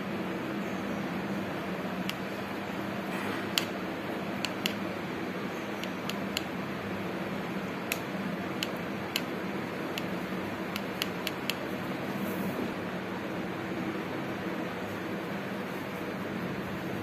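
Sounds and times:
paintbrush clicking on plastic: 4.4s - 4.8s, 5.8s - 6.5s, 9.9s - 11.6s.

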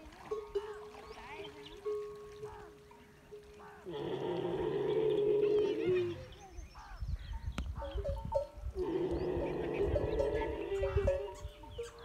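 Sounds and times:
camel groaning: 3.8s - 6.3s, 8.8s - 11.3s.

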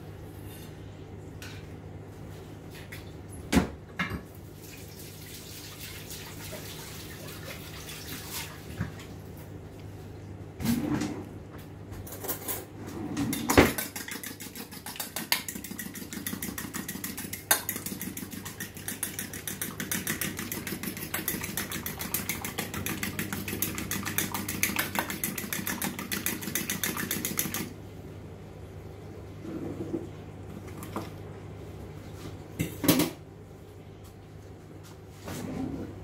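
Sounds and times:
fork clinking in metal bowl: 13.8s - 27.6s.

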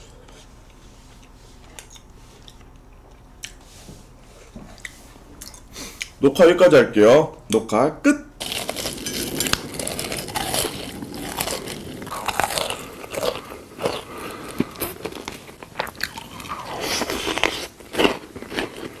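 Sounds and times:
person chewing crunchy food: 8.4s - 19.0s.

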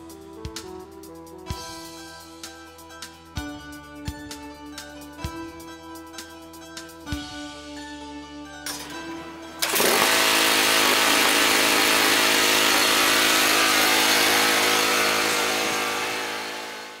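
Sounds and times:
lawn tractor engine running: 8.7s - 17.0s.

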